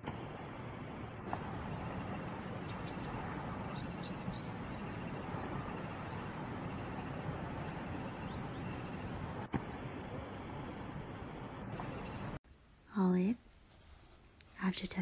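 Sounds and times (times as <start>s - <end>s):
outdoor background noise: 0.0s - 15.0s
high bird chirps: 2.7s - 5.5s.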